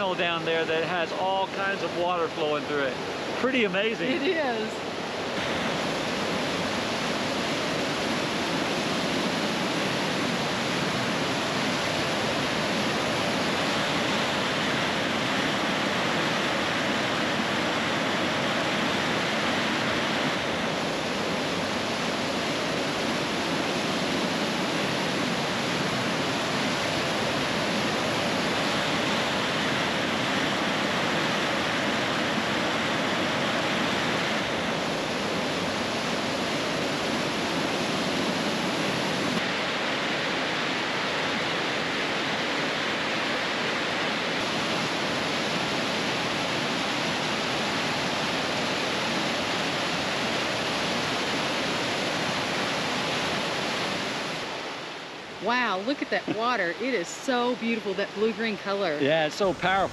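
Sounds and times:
rushing river water: 0.0s - 59.9s.

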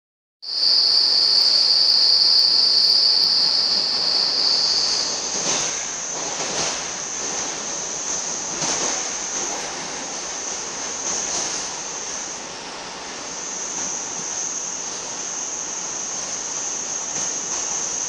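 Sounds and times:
faint high whine: 0.4s - 6.1s
train high-pitched squeal: 0.5s - 6.0s
train ride rumble: 0.5s - 18.0s.

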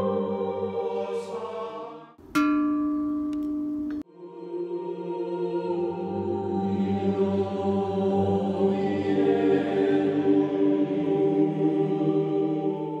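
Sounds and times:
choir chanting sustained chords: 0.0s - 2.2s, 4.0s - 13.0s.

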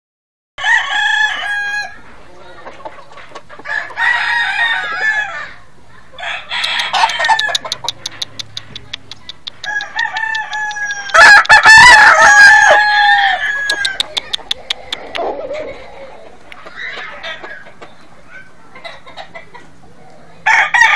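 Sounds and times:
rooster crowing: 0.6s - 2.0s, 3.7s - 5.6s, 6.2s - 7.6s, 9.6s - 14.2s, 20.5s - 20.9s
fast run of clicks: 6.6s - 11.6s.

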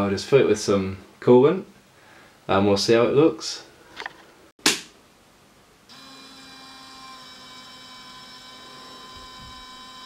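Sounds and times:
small pump whining: 5.9s - 10.0s.

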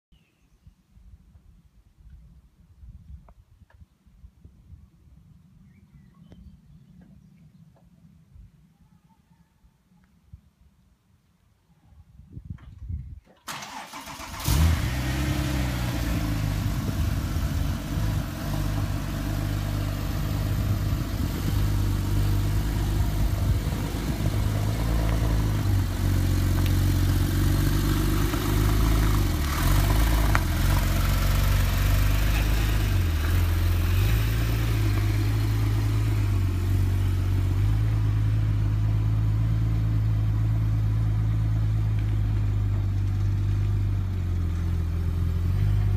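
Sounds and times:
car engine starting: 13.4s - 45.9s
car engine idling: 15.5s - 45.9s.

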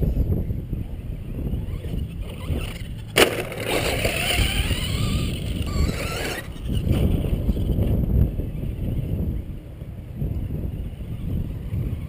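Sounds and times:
wind rumble on microphone: 0.0s - 12.0s
toy truck motor whining: 0.9s - 9.1s
truck landing thump: 3.2s - 4.8s.

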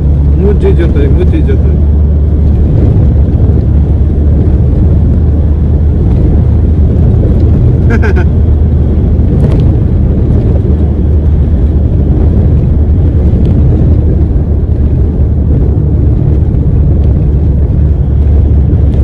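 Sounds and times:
truck driving at highway speed: 0.0s - 19.0s.

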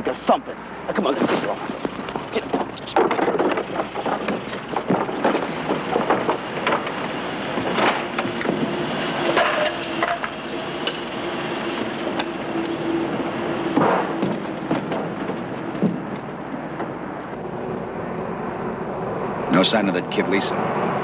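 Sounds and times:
steady low hum: 0.0s - 21.0s
knocks and scuffs on wooden crates: 13.7s - 17.0s.

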